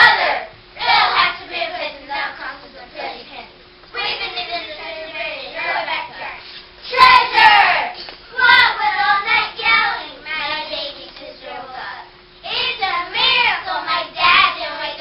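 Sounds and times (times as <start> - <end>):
children chanting in unison: 0.0 - 1.8, 5.6 - 9.6.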